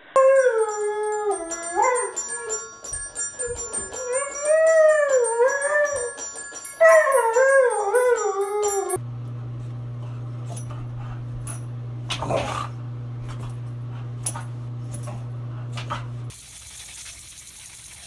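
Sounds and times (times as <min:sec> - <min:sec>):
dog howling: 0:00.2 - 0:02.8, 0:03.4 - 0:06.2, 0:06.8 - 0:09.0
toy xylophone notes: 0:00.2 - 0:09.0.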